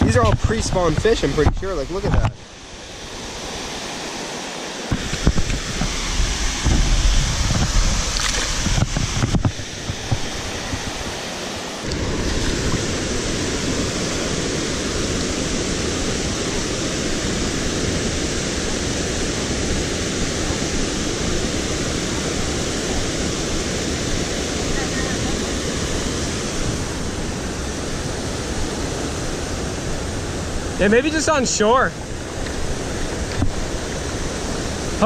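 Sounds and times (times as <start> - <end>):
wind rumble on microphone: 0.0 - 3.6, 4.9 - 11.3, 32.0 - 35.0
water rushing over a dam: 0.0 - 35.0.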